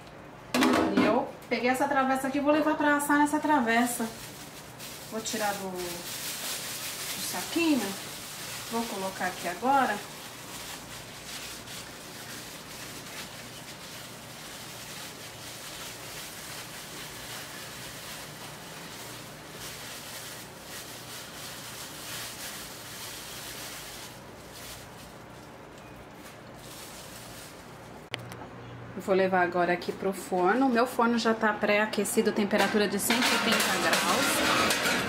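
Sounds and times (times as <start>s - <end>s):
plastic bag crinkling: 3.5s - 28.4s.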